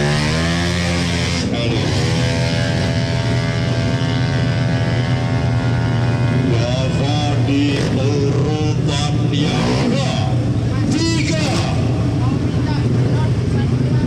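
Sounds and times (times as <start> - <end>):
scooter engine revving hard: 0.0 - 12.0.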